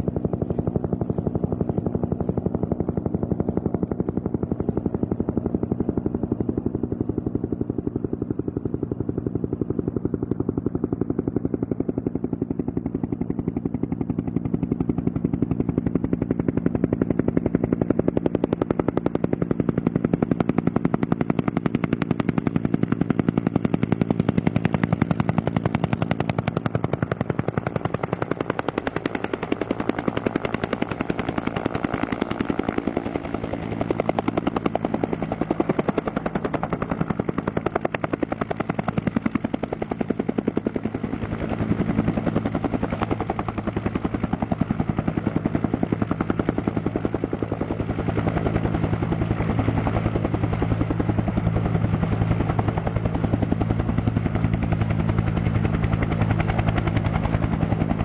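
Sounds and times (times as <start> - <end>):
helicopter engine hum: 0.0 - 58.0
helicopter rotor beating: 0.0 - 58.0.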